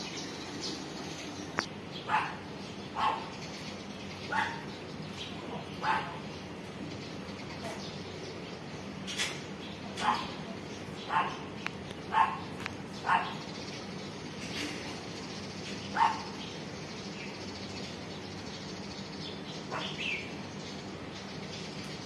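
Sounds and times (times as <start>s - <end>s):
dog barking: 2.1s - 2.4s, 3.0s - 3.3s, 4.3s - 4.7s, 5.8s - 6.2s, 10.0s - 10.4s, 11.1s - 11.5s, 12.1s - 13.4s, 16.0s - 16.4s, 19.7s - 20.0s.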